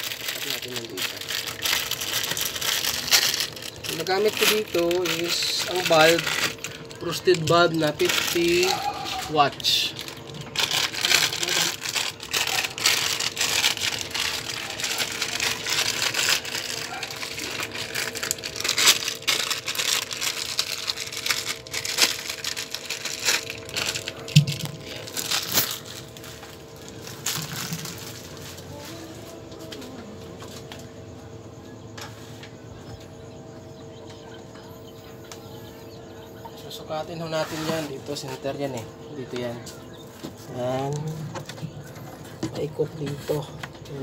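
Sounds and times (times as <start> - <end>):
rustling and crinkling: 0.0 - 30.9
quiet steady hum: 0.0 - 44.0.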